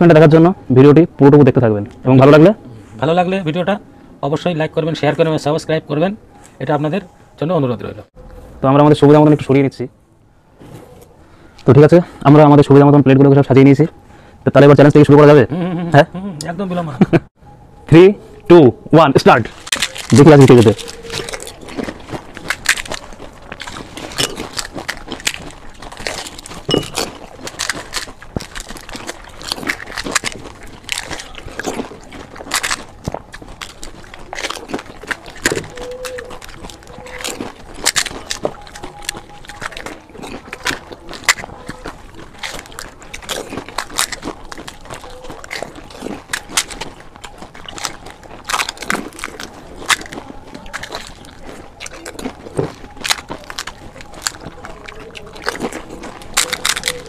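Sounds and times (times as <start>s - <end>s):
crunching and chewing: 18.3s - 57.0s
crisp shells cracking: 19.5s - 57.0s.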